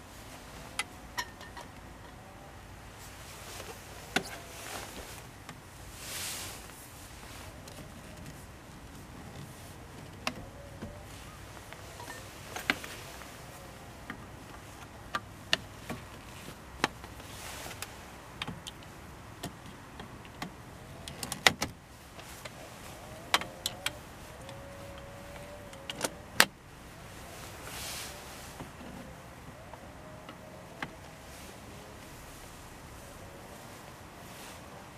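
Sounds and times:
metal poles clinking and knocking: 0.8 - 2.2, 12.0 - 12.9.

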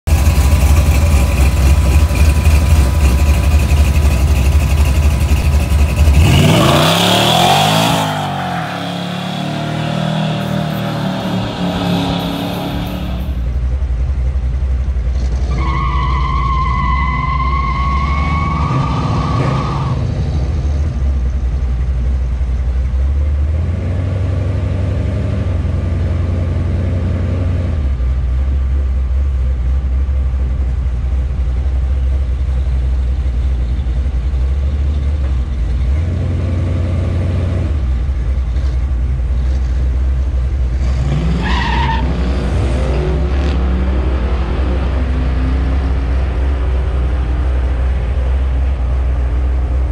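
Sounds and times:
pickup engine idling: 0.1 - 6.6, 10.2 - 15.4, 27.9 - 36.0
engine revving: 0.1 - 13.6, 40.7 - 48.9
high tyre squeal: 5.4 - 13.5, 15.4 - 20.4, 40.9 - 42.8.

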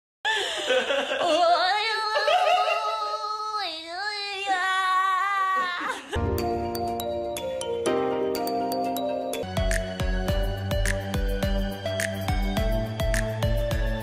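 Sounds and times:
music with bell-like notes: 6.2 - 14.0.

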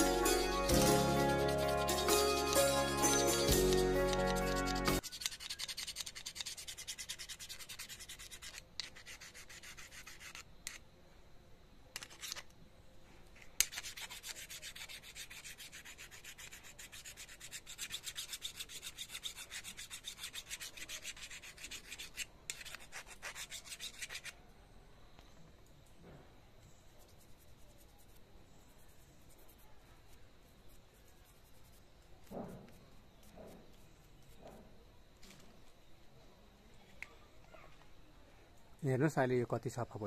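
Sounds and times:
background music: 0.0 - 5.0
file scraping metal blade: 0.7 - 10.8, 13.6 - 24.4.

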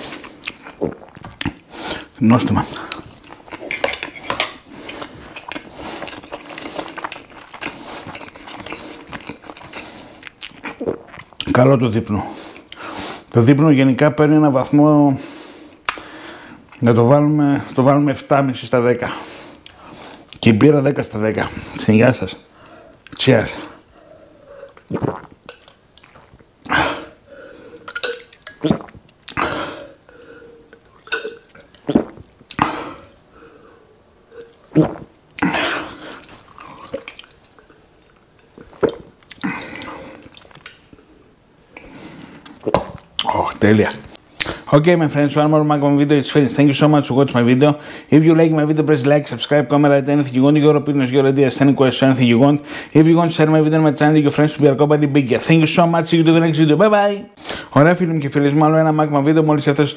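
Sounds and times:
man gulping: 0.0 - 11.5, 23.0 - 33.6, 34.2 - 41.1, 41.7 - 44.7
chewing and mouth sounds: 0.1 - 2.1, 2.7 - 11.5, 24.7 - 26.8, 34.4 - 41.0
cutlery clinking on plate: 3.7 - 4.6.

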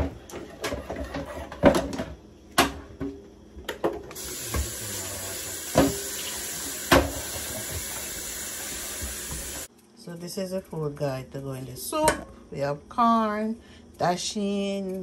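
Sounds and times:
tap water running into sink: 4.1 - 9.7.

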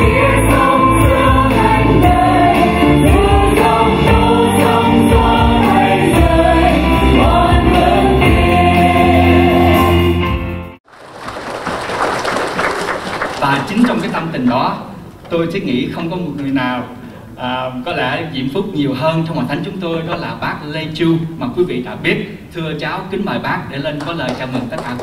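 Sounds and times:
women singing a hymn: 0.0 - 10.2.

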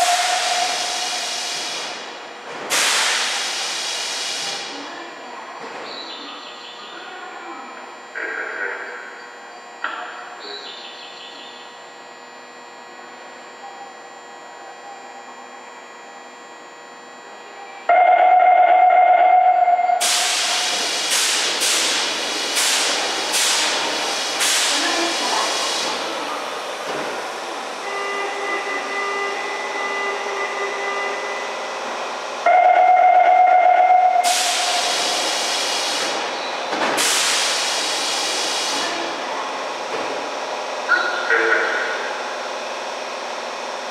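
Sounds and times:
train warning horn: 0.0 - 1.2, 17.8 - 20.2, 27.7 - 31.8, 32.4 - 34.9
steady warning tone: 0.0 - 2.2, 5.1 - 21.0, 24.8 - 35.3, 40.8 - 43.9
air hiss of train doors: 0.0 - 4.8, 20.0 - 26.2, 34.2 - 39.0
subway station hum: 0.0 - 43.9.

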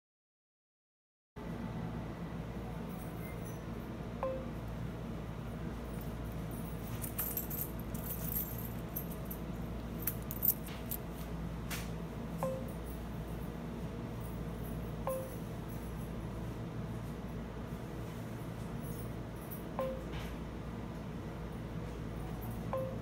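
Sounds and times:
steady low hum: 1.4 - 23.0
touchscreen beeping: 4.2 - 4.6, 12.4 - 12.7, 15.1 - 15.4, 19.8 - 20.1, 22.8 - 23.0
light jingling clinks: 6.0 - 11.1.

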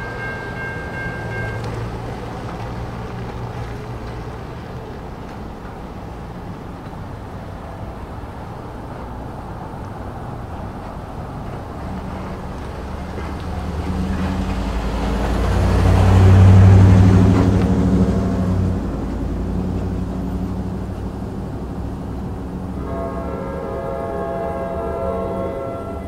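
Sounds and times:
truck driving past: 0.0 - 26.0
train horn: 22.7 - 26.0.

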